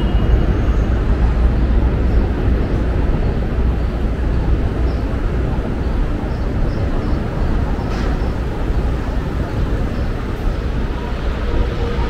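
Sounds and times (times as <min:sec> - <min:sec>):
low rumble of traffic: 0:00.0 - 0:12.0
voices of passers-by: 0:00.0 - 0:12.0.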